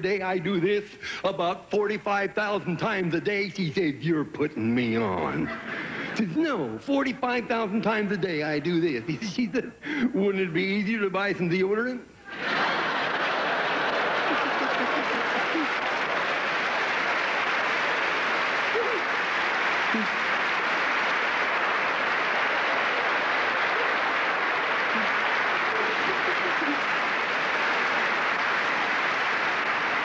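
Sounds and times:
audience laughter: 5.4s - 6.3s, 12.3s - 30.0s
audience applauding: 12.3s - 30.0s.

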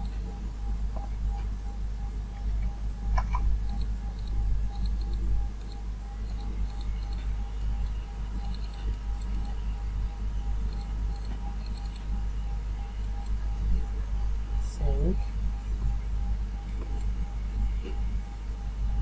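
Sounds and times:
low background hum: 0.0s - 19.0s
computer mouse clicking: 3.2s - 9.6s, 10.7s - 12.2s.

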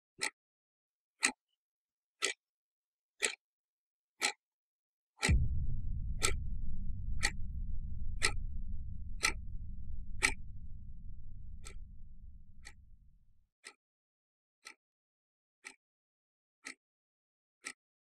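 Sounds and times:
deep low rumble: 5.3s - 13.4s.

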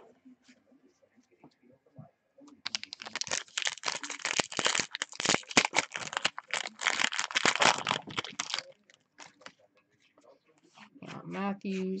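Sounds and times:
foil pack crinkling and tearing: 2.7s - 9.5s.

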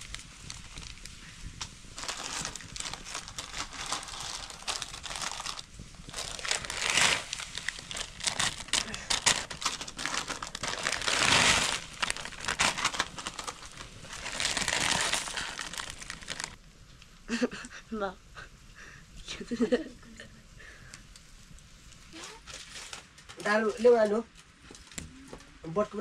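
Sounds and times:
plastic packaging crinkling: 0.0s - 16.6s, 22.2s - 25.0s.

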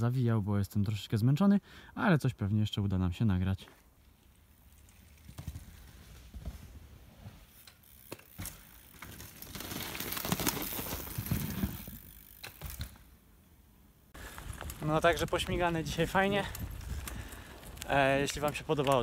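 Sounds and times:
bike tyres rushing over dirt: 4.0s - 13.1s, 14.2s - 19.0s.

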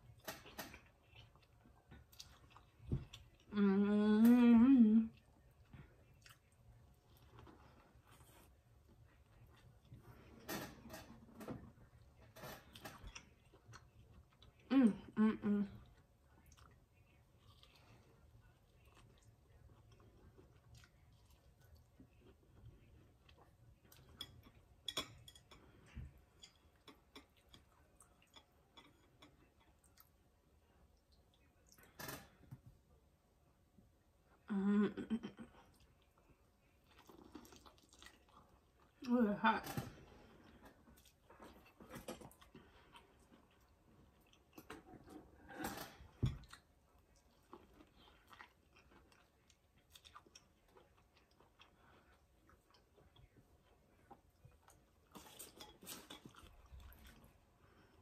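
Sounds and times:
chewing corn on the cob: 15.8s - 24.2s, 35.6s - 39.0s, 46.4s - 58.0s.

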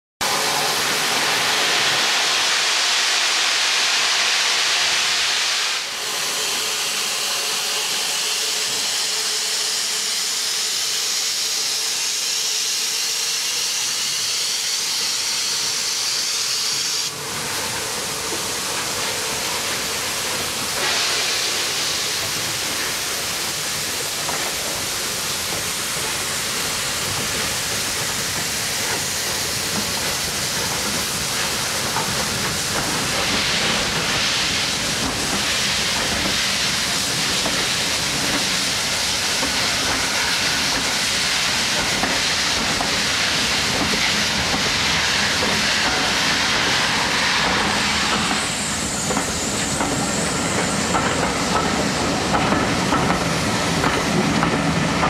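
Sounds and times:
steam locomotive hissing steam: 0.2s - 55.0s.

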